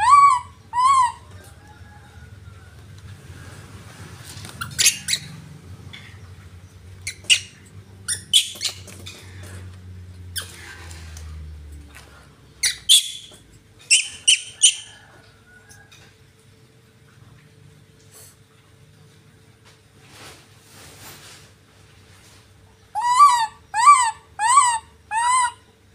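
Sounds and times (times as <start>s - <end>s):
baby monkey squeaking: 0.0s - 1.4s, 4.6s - 5.4s, 7.0s - 9.3s, 12.6s - 14.9s, 23.0s - 25.6s.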